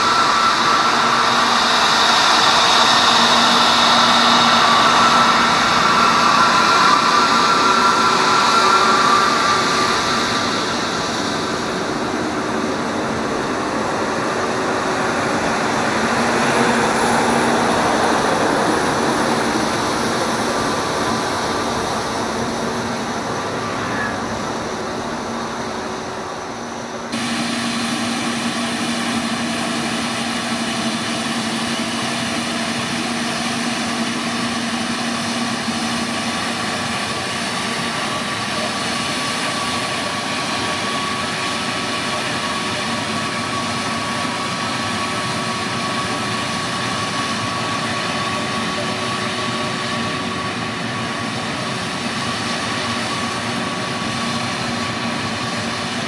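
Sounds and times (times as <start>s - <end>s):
jet engines whining at taxi power: 0.0s - 56.0s.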